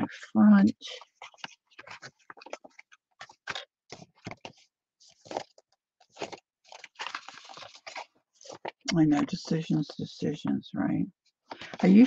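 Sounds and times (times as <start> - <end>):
paper envelopes rustling: 0.8 - 9.6.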